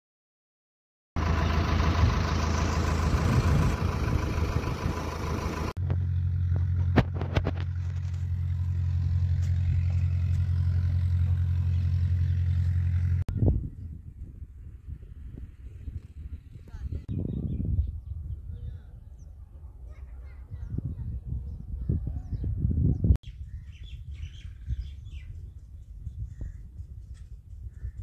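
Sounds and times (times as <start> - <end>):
diesel engine running: 1.2 - 17.1.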